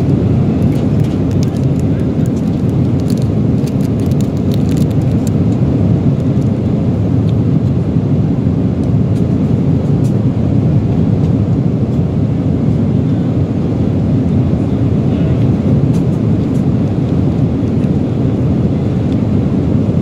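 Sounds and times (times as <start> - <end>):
airliner cabin engine noise: 0.0 - 20.0
plastic packet crinkling: 0.6 - 5.4.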